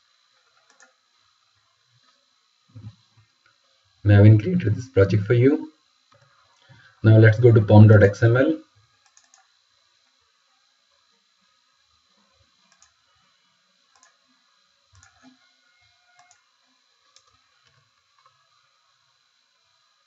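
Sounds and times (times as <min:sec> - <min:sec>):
computer mouse clicks: 0:00.6 - 0:01.0, 0:09.0 - 0:09.5, 0:12.7 - 0:13.0, 0:13.9 - 0:14.2, 0:14.9 - 0:15.4, 0:16.1 - 0:16.4, 0:17.1 - 0:18.3.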